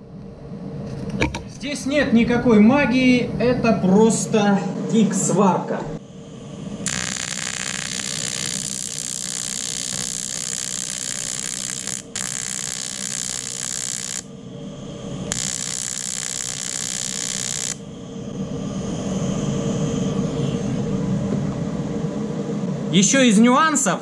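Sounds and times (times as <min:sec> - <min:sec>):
welding arc hissing: 0:06.8 - 0:14.3, 0:15.2 - 0:17.9.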